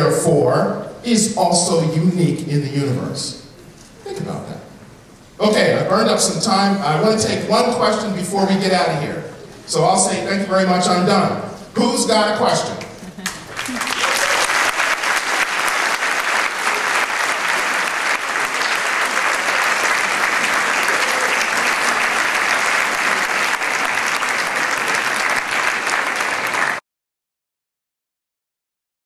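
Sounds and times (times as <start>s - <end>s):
audience applauding: 13.2s - 26.8s.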